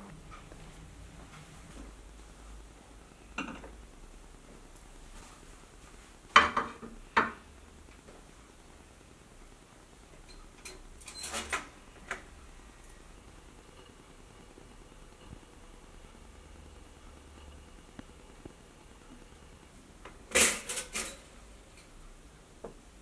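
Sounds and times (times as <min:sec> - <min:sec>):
crockery clattering on worktop: 0:06.4 - 0:07.4.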